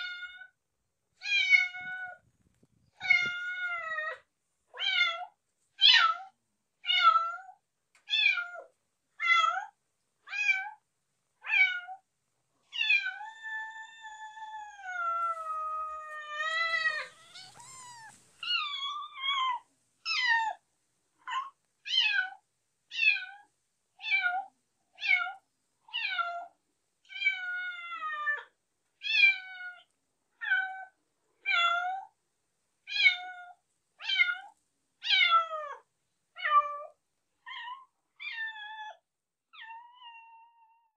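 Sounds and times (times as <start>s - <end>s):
cat meowing: 1.2s - 2.2s, 3.0s - 4.2s, 12.7s - 20.6s, 39.6s - 40.9s.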